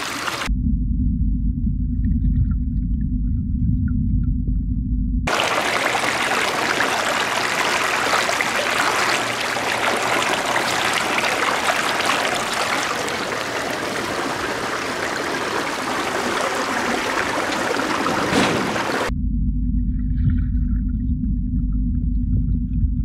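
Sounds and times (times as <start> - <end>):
water trickling over rocks: 0.0 - 0.5, 5.3 - 19.1.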